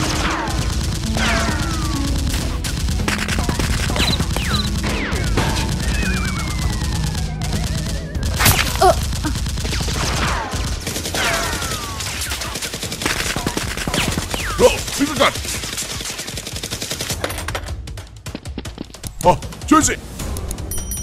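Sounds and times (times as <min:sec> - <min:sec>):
automatic gunfire: 0:00.0 - 0:17.5
falling whistles: 0:05.8 - 0:07.4.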